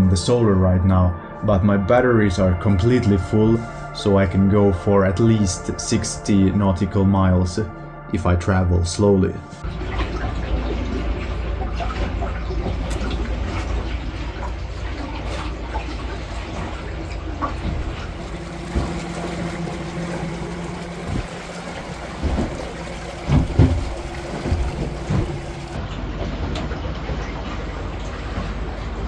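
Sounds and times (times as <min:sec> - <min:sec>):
low rumble: 0:00.0 - 0:29.0
steady hum: 0:09.5 - 0:26.0
water splashing around boat: 0:09.6 - 0:29.0.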